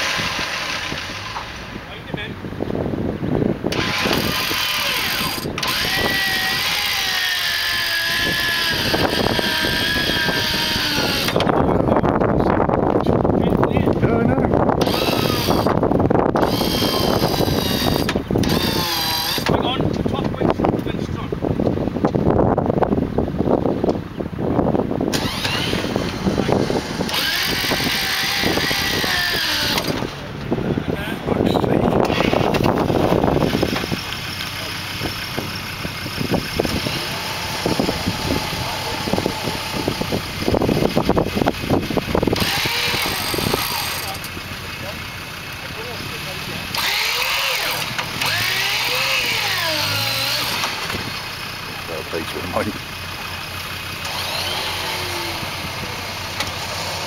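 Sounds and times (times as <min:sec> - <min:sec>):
rough vehicle noise: 0:00.0 - 0:57.0
winch motor whining: 0:03.7 - 0:12.4, 0:14.8 - 0:19.7, 0:25.0 - 0:30.5, 0:31.4 - 0:57.0.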